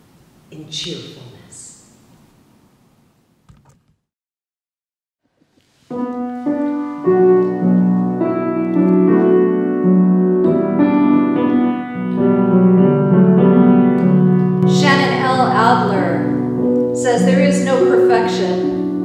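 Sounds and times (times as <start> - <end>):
grand piano playing: 5.9 - 19.0.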